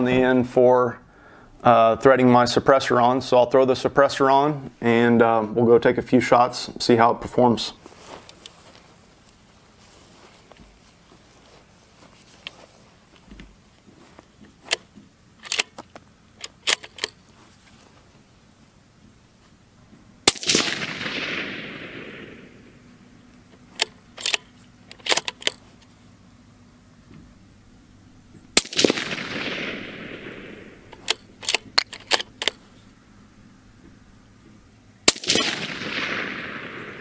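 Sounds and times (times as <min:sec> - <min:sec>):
rifle bolt metallic clicks: 0:14.4 - 0:17.3, 0:23.3 - 0:26.0, 0:28.5 - 0:32.8
suppressed rifle shots: 0:20.2 - 0:25.8, 0:28.5 - 0:32.8, 0:35.0 - 0:37.0.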